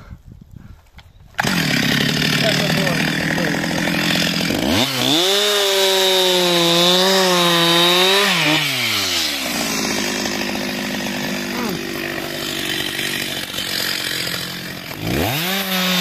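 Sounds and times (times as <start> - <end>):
chainsaw cutting log: 1.4 - 16.0.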